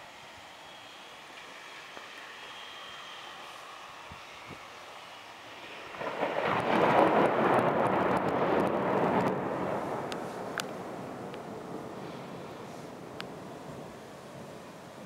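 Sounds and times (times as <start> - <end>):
faint steady hiss: 0.0 - 15.0
thunder rumble: 5.5 - 15.0.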